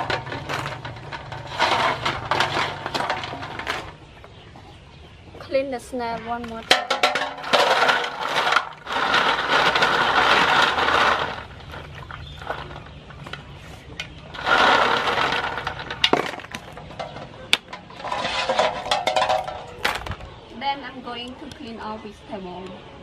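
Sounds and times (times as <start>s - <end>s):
snail shells clattering: 0.0s - 4.4s, 6.4s - 20.3s
water sloshing: 6.8s - 13.6s.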